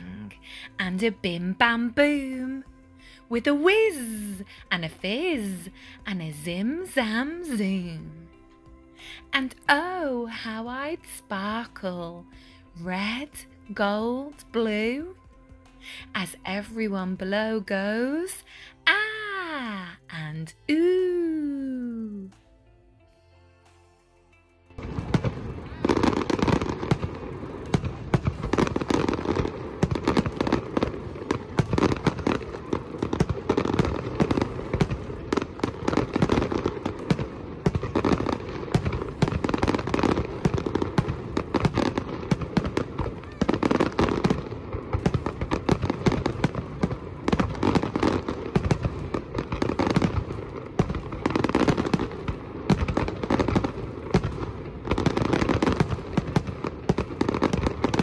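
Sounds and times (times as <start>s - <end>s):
fireworks crackling: 0.0s - 8.4s, 24.8s - 58.0s
fireworks bursting: 24.8s - 58.0s.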